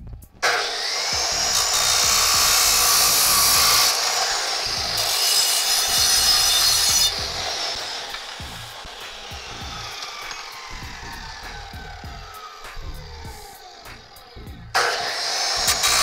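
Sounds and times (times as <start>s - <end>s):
chop saw grinding through metal: 0.4s - 16.0s.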